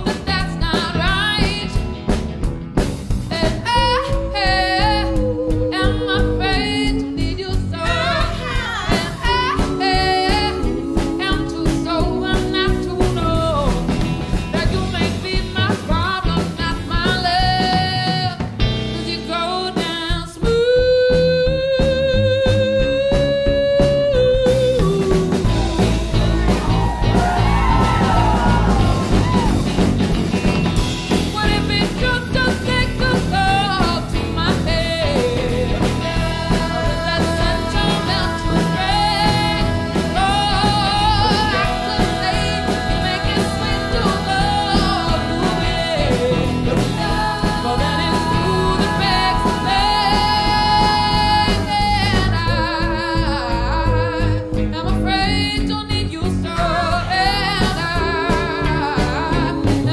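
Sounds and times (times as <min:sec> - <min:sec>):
woman singing lead: 0:00.0 - 0:01.9, 0:03.3 - 0:29.8, 0:31.1 - 0:59.9
live band playing: 0:00.0 - 0:59.9
backing vocal: 0:22.7 - 0:29.9, 0:34.5 - 0:55.2.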